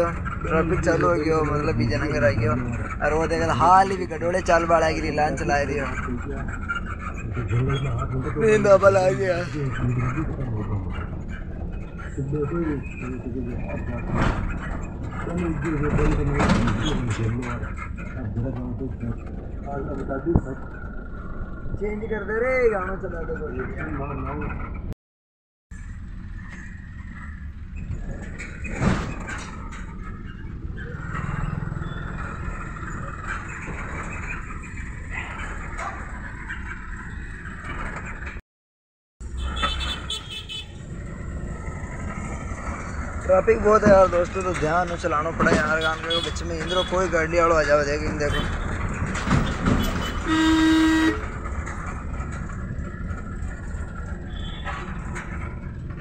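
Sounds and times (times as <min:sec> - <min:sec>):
diesel tractor engine rumble: 0:00.0 - 0:24.8, 0:25.8 - 0:38.4, 0:39.2 - 0:56.0
vehicle horn blast: 0:50.0 - 0:51.2.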